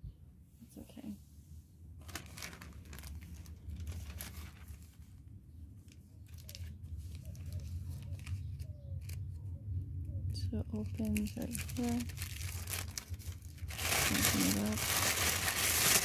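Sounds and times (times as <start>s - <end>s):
steady low hum: 0.0s - 16.0s
plastic bag crinkling: 2.0s - 9.3s, 10.8s - 16.0s.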